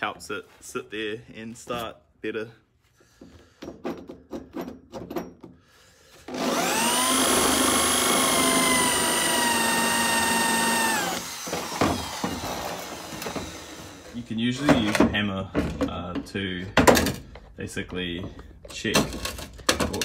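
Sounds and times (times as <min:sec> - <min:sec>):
electric drill whining: 0:06.3 - 0:14.2.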